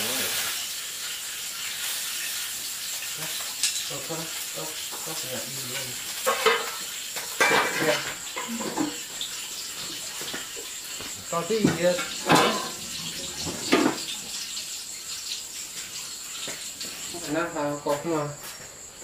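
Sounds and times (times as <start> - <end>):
food sizzling in a pan: 0.0 - 19.0
utensils clinking: 5.7 - 9.0, 11.5 - 14.2.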